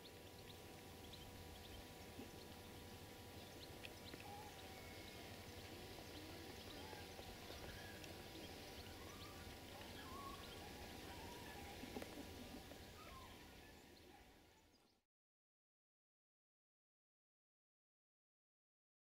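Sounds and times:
faint steady hum: 0:00.0 - 0:15.0
bird chirps: 0:03.4 - 0:15.0
wavering animal calls: 0:04.1 - 0:14.5.

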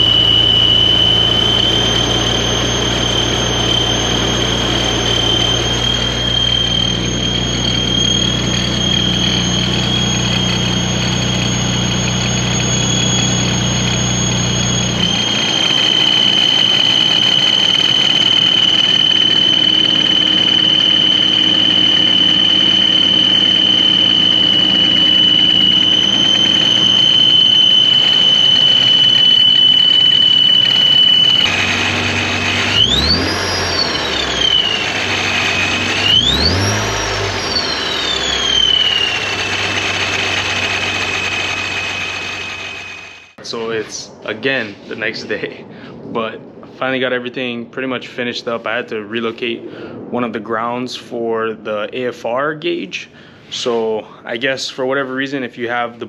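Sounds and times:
engine revving: 0:00.0 - 0:43.4
engine idling hum: 0:00.0 - 0:46.8
supercharger whine: 0:00.0 - 0:56.0.

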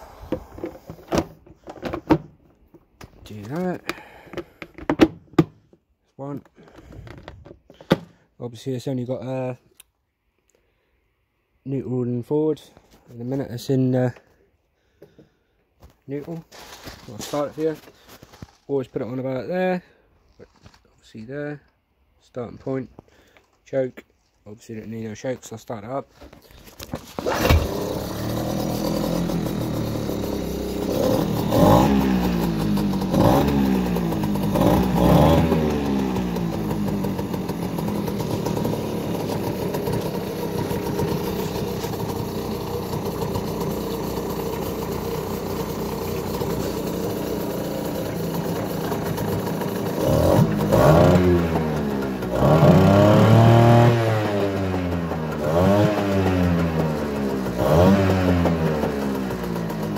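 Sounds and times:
outboard motor running: 0:27.1 - 0:53.8, 0:58.4 - 0:59.9.

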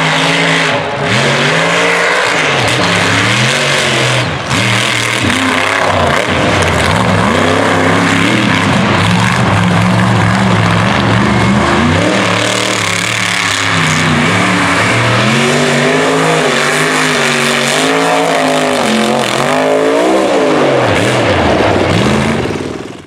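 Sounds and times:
truck engine revving: 0:00.0 - 0:23.0.

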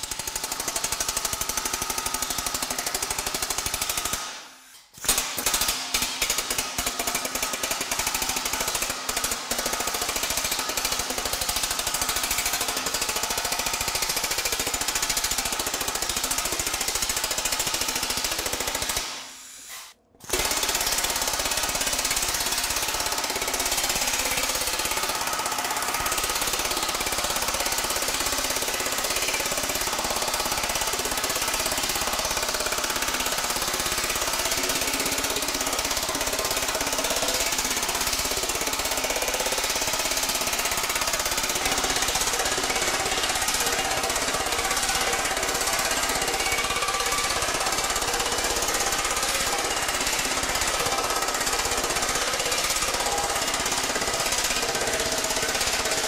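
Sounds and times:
power hammer pounding metal sheet: 0:20.3 - 0:56.0.

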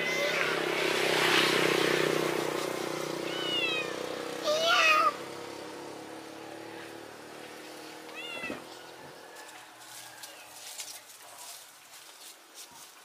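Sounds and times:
engine hum: 0:00.0 - 0:11.1
cat meowing: 0:03.2 - 0:04.0, 0:08.1 - 0:08.7.

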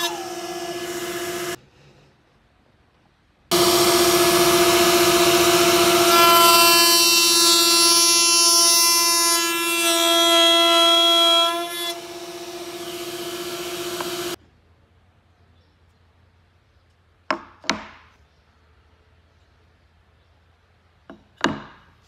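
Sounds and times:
router bit cutting wood: 0:00.0 - 0:01.6, 0:03.5 - 0:14.4
router whining: 0:00.0 - 0:01.6, 0:03.5 - 0:14.4.

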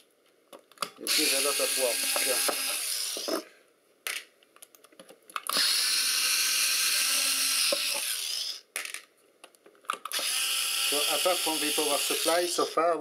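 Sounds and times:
electric screwdriver running: 0:01.1 - 0:03.4, 0:05.5 - 0:08.6, 0:10.1 - 0:12.8.

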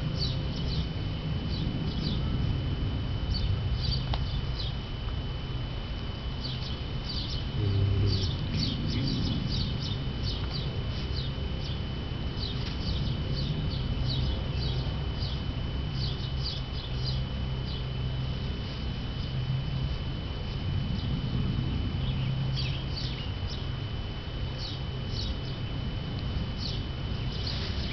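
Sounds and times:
small birds chirping: 0:00.0 - 0:02.5, 0:03.2 - 0:04.9, 0:06.4 - 0:19.5, 0:20.4 - 0:25.7, 0:26.4 - 0:27.9
steady high-pitched tone: 0:00.0 - 0:27.9
low rumble: 0:07.4 - 0:10.8.

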